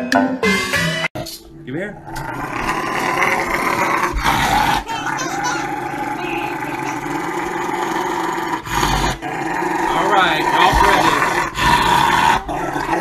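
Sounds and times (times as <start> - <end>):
dog vocalizing in protest: 3.4 - 7.6.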